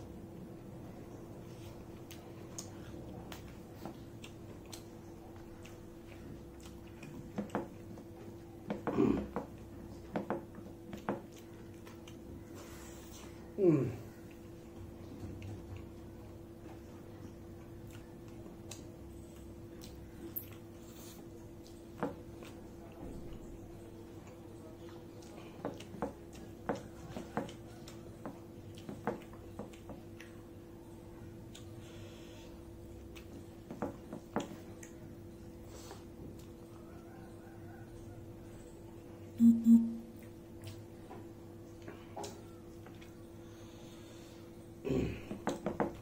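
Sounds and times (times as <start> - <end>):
faint steady hum: 0.0 - 46.0
man chewing food: 0.0 - 46.0
low hum: 37.9 - 40.4.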